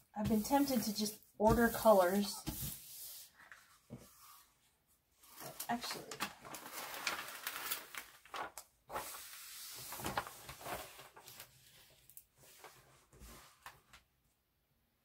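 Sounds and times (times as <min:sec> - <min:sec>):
plastic sheet peeling and crackling: 0:05.3 - 0:12.2.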